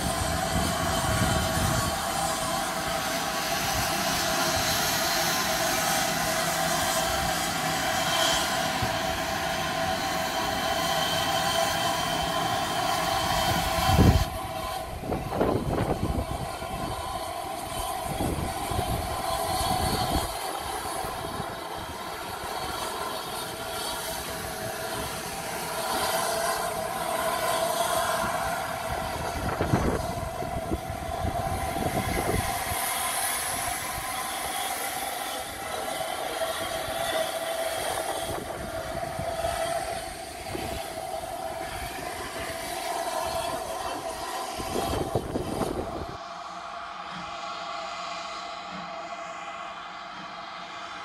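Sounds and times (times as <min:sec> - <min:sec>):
steam train running: 0:00.0 - 0:51.0.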